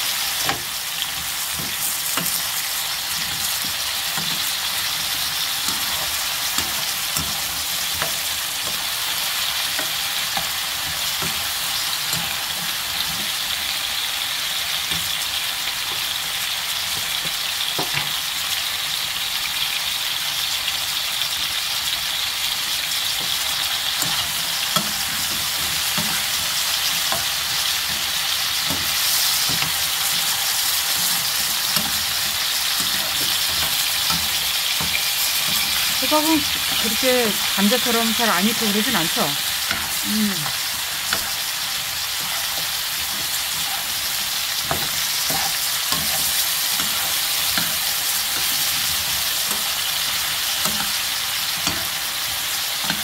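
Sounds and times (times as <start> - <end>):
pumpkin sizzling in oil: 0.0 - 53.0
metal spoon scraping a pan: 23.1 - 53.0.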